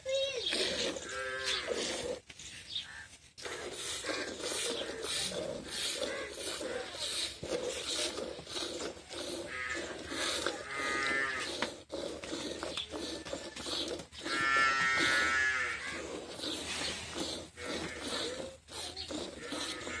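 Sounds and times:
cow mooing: 1.0 - 2.0, 9.2 - 11.6, 13.0 - 16.3, 19.1 - 20.0
milk squirting into steel pot: 3.4 - 15.3.

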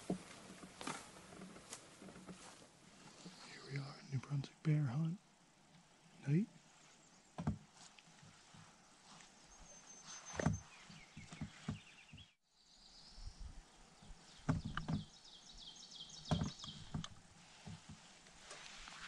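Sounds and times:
rustling: 0.0 - 3.8, 6.5 - 12.2, 16.2 - 19.0
songbirds chirping: 0.0 - 19.0
low thumps: 14.4 - 15.1, 16.2 - 18.1.

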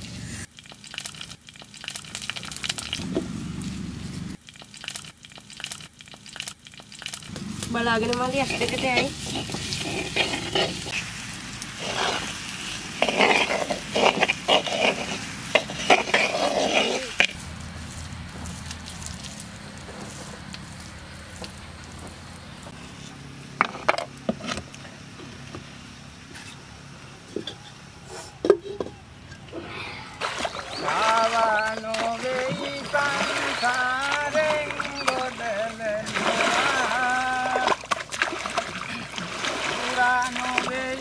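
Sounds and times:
potatoes sizzling: 7.3 - 22.6.

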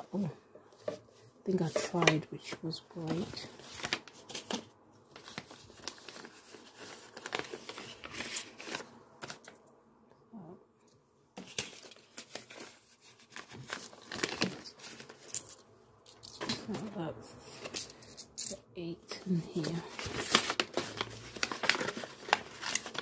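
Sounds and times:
paper envelopes rustling: 0.1 - 9.5, 11.4 - 15.5, 19.1 - 23.0.

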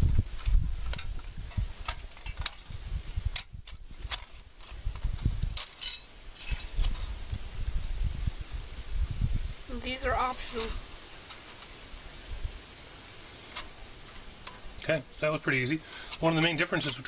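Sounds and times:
metallic ring: 5.8 - 6.8.

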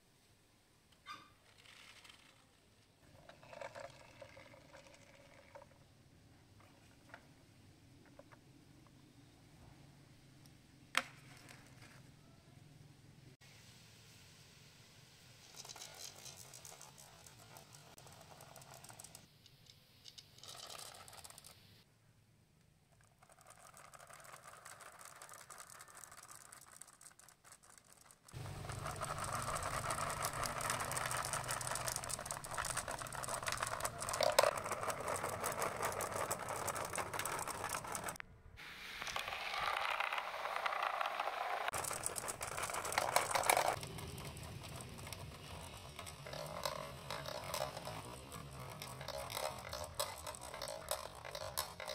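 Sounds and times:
glass marbles rattling through tubing: 3.1 - 5.7, 15.5 - 19.3, 20.2 - 21.6, 23.0 - 38.2, 39.0 - 51.9.

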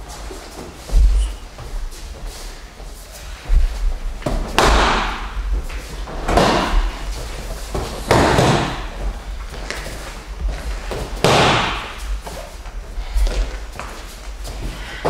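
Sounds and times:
bodies thudding on a padded mat: 3.4 - 12.3.

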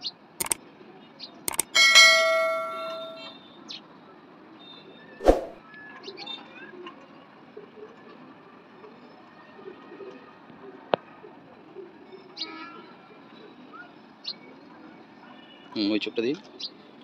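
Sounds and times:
mouse clicks: 1.5 - 1.7
notification bell ringing: 1.5 - 3.3.

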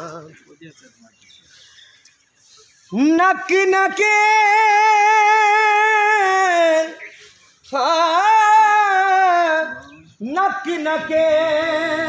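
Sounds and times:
person singing unaccompanied: 0.0 - 0.5, 2.9 - 12.0.

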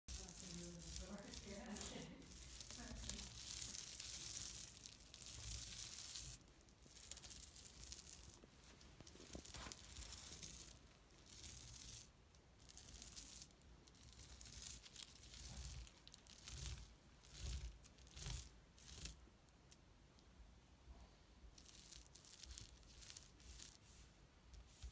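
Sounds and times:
bubble wrap rustling and crinkling: 0.1 - 19.2, 21.5 - 24.9.

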